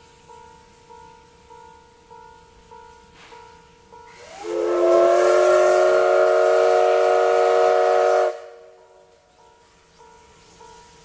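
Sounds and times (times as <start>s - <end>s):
steam locomotive whistle: 4.1s - 9.2s.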